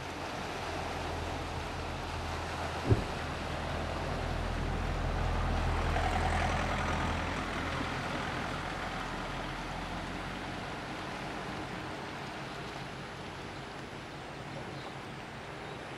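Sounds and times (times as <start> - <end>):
heavy vehicle engine rumble: 0.0 - 14.7
small waves on rocks: 0.0 - 15.9
wind: 0.0 - 15.9.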